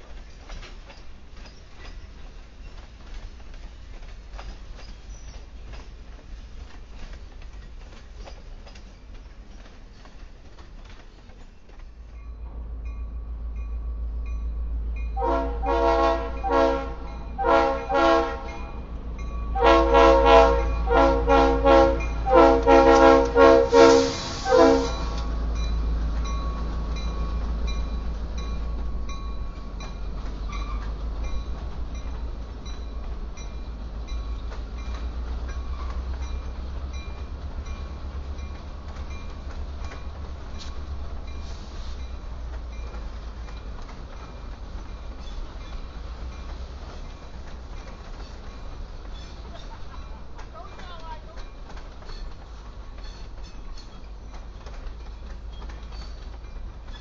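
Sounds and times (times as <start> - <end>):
diesel locomotive engine rumble: 0.0 - 57.0
freight cars rolling past: 0.0 - 57.0
locomotive air horn blasts: 15.2 - 18.7, 19.5 - 25.3.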